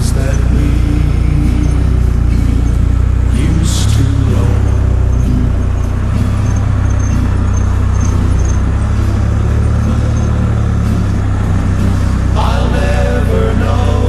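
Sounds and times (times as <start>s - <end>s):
motorcycle engine droning: 0.0s - 14.0s
road and wind noise: 0.0s - 14.0s.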